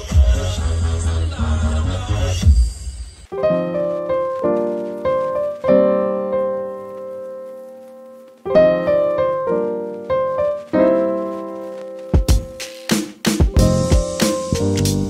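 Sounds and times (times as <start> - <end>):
solo piano music: 3.3 - 12.6, 13.4 - 15.0.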